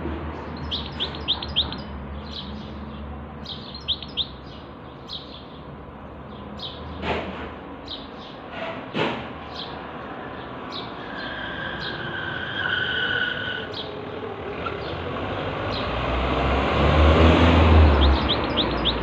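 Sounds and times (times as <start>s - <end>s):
cage birds chirping: 0.2s - 19.0s.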